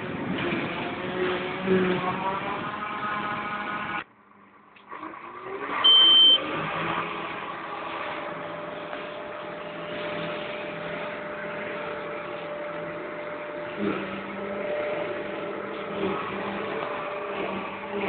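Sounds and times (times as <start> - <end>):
forage harvester and tractor running: 0.0 - 4.0, 4.8 - 18.0
tractor engine heard from cab: 4.7 - 18.0
loud high beep: 5.8 - 6.4.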